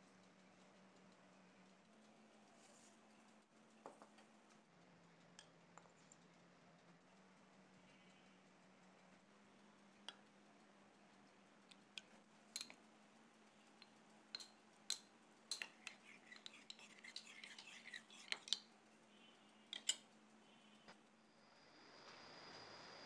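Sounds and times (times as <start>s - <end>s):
metal spoon clinking in bowl: 12.6s - 12.8s, 13.8s - 18.7s, 19.7s - 20.0s.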